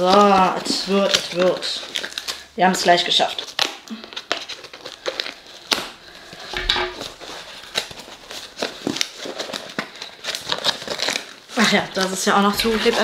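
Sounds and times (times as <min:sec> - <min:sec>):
cardboard being cut and torn: 0:07.0 - 0:11.4.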